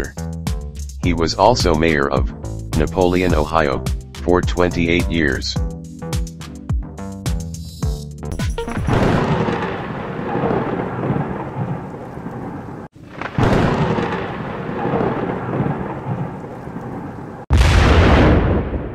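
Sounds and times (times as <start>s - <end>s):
thunder-like rumbling: 8.8s - 18.9s.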